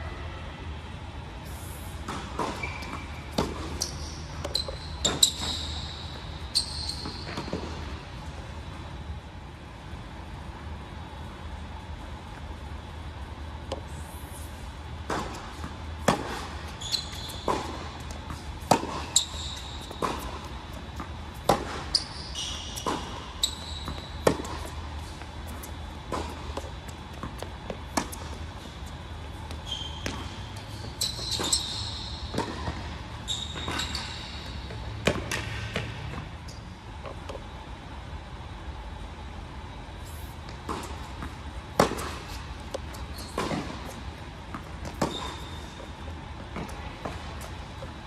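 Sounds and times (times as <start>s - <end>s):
sneakers squeaking: 1.4s - 8.8s, 13.2s - 37.6s, 40.0s - 48.0s
racket hitting tennis ball: 2.0s - 5.5s, 15.0s - 16.7s, 17.4s - 21.9s, 22.7s - 28.6s, 32.3s - 33.0s, 35.0s - 36.3s, 40.5s - 45.4s
tennis ball bouncing: 2.1s - 5.5s, 15.0s - 16.6s, 17.3s - 22.0s, 22.7s - 31.6s, 32.2s - 33.0s, 34.7s - 36.3s, 40.4s - 45.4s.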